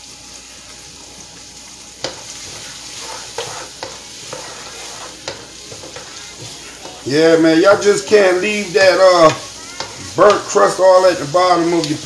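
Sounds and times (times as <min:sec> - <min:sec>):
vegetables sizzling in a pan: 0:00.0 - 0:12.0
wooden spoon scraping a pan: 0:02.0 - 0:10.6.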